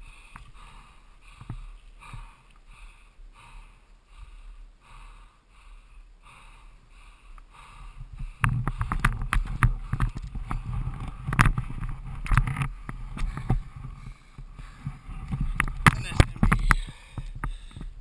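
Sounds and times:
camera handling knocks and rubbing: 8.5 - 13.9.

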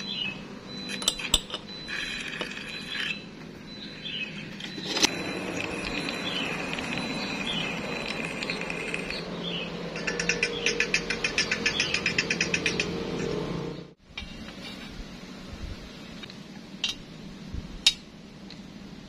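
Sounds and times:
metallic clinks and taps: 16.8 - 17.0.

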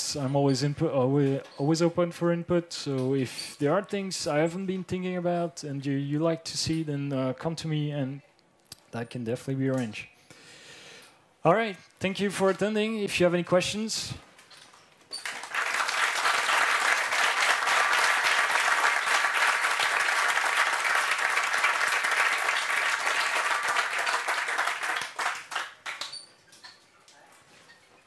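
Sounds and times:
audience applauding: 15.2 - 26.2.

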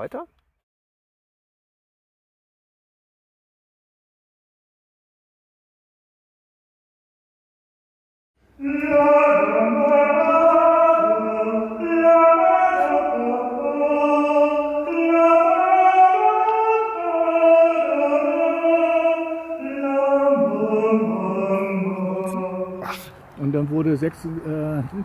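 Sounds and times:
man singing unaccompanied: 8.6 - 23.2.

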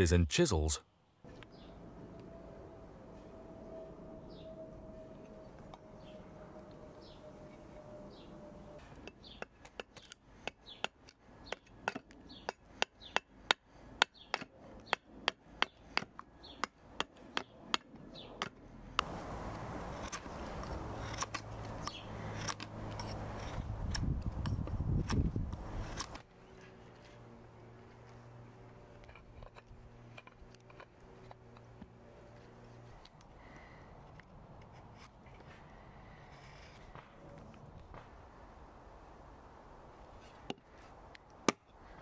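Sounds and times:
rapid cutting and scraping: 19.0 - 33.2.

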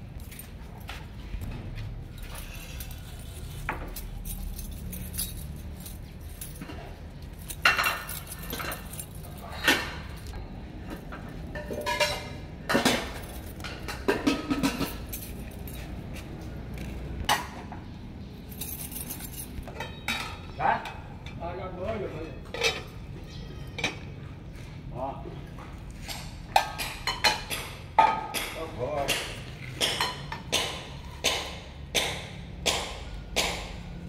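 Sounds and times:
light clinks and jingles: 0.1 - 1.1, 2.1 - 10.4, 11.6 - 17.0, 18.2 - 20.6.

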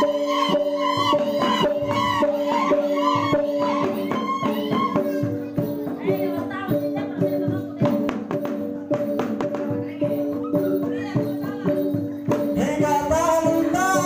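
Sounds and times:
people singing: 0.0 - 5.2, 12.3 - 14.0.

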